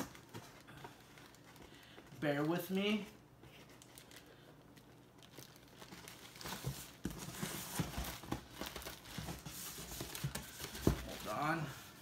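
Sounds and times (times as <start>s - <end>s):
plastic bag crinkling: 3.7s - 9.4s.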